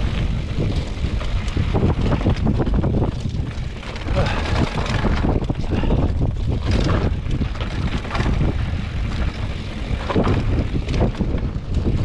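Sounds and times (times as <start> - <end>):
wind buffeting microphone: 0.0 - 12.0
knocks and rattles: 1.2 - 8.6.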